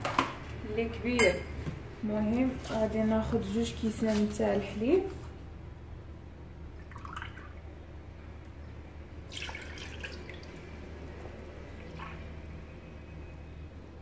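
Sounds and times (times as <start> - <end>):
low steady hum: 0.1 - 14.0.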